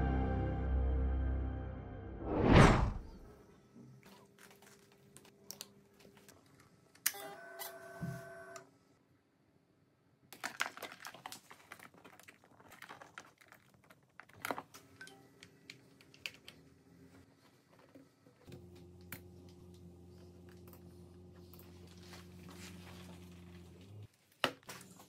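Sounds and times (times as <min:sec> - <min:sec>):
rustling: 0:21.4 - 0:25.0.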